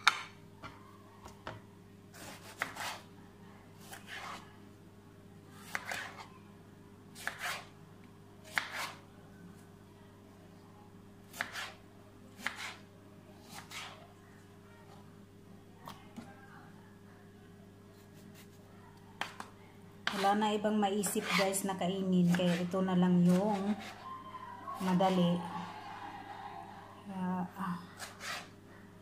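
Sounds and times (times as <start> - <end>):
knife slicing tomato on board: 2.1 - 3.1, 3.8 - 4.5, 5.6 - 6.3, 7.2 - 7.7, 8.4 - 9.0, 11.3 - 11.8, 12.4 - 12.8, 13.4 - 14.0, 19.2 - 20.4, 21.1 - 21.5, 22.2 - 24.0, 28.0 - 28.5.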